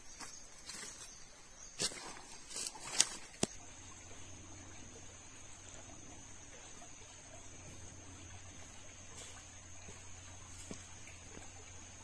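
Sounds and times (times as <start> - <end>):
footsteps crunching on dry leaves: 0.0 - 1.2, 1.8 - 3.6
high-pitched insect hum: 0.0 - 12.0.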